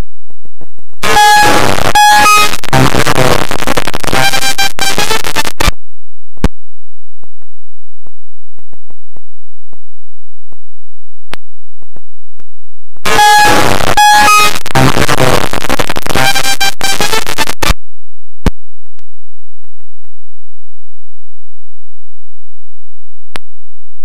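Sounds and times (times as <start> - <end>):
distorted horn-like tones: 0.0 - 5.8, 13.0 - 17.8.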